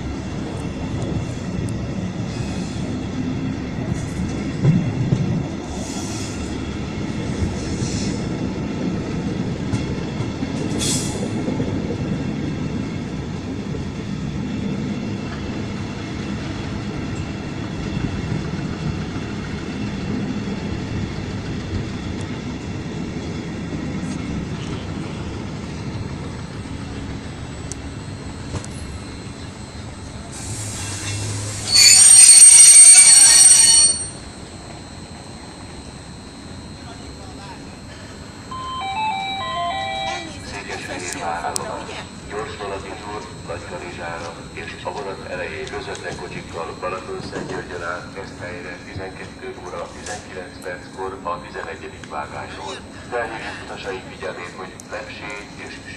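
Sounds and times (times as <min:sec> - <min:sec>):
train wheels rumbling on rail: 0:00.0 - 0:36.1, 0:41.1 - 0:55.9
train brakes squealing: 0:07.3 - 0:08.4, 0:10.3 - 0:11.6, 0:28.7 - 0:34.8, 0:36.4 - 0:40.5.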